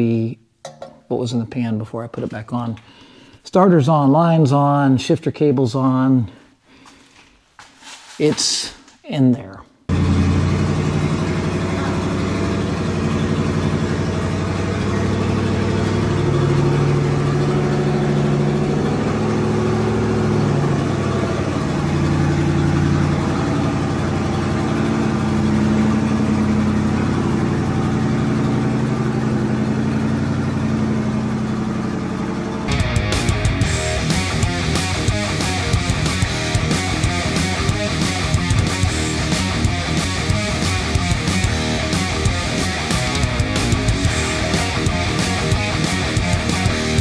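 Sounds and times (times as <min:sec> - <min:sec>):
pickup truck engine running: 0:09.9 - 0:47.0.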